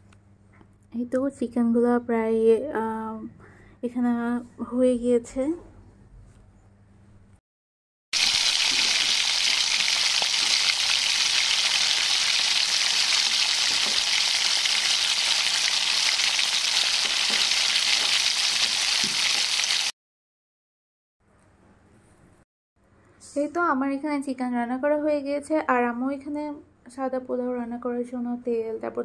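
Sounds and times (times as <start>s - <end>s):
curry bubbling and sizzling in a pot: 8.2s - 19.9s.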